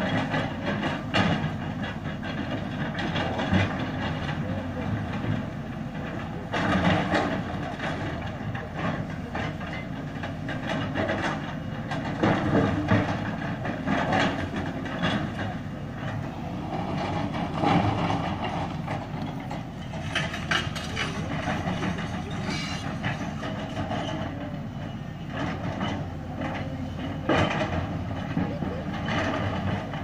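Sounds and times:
diesel engine under load: 0.0s - 30.0s
steel bucket clanking on rock: 6.6s - 30.0s.

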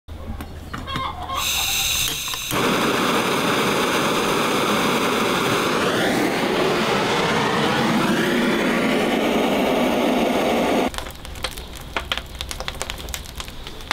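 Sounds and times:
blow torch flame rushing: 1.4s - 10.9s
gas hissing: 1.4s - 10.9s.

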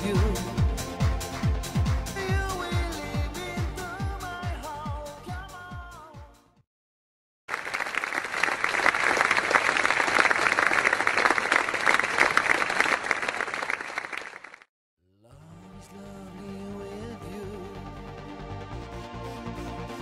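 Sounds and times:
background pop music: 0.0s - 6.5s
crowd applauding: 7.5s - 14.7s.

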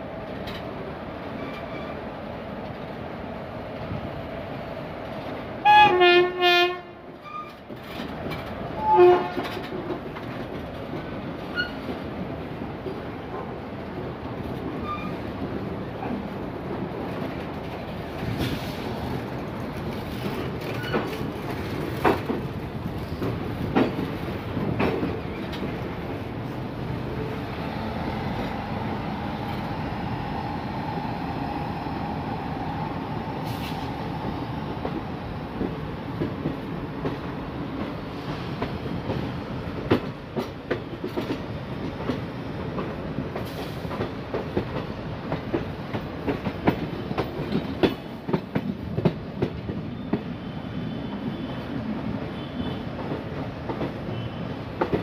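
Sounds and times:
coach wheels over rail joints: 7.2s - 29.9s, 34.8s - 50.6s.

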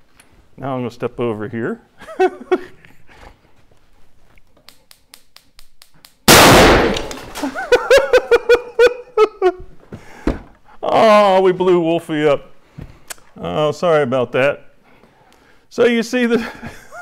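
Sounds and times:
person laughing: 2.0s - 3.0s, 7.3s - 9.7s, 16.4s - 17.0s
propane explosion bang: 6.3s - 7.6s.

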